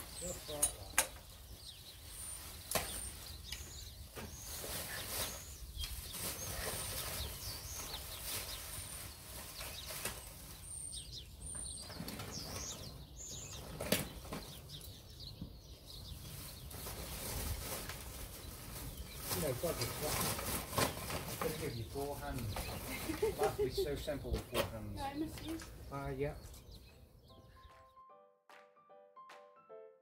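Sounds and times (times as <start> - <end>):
plastic bin bag rustling: 16.6 - 23.8.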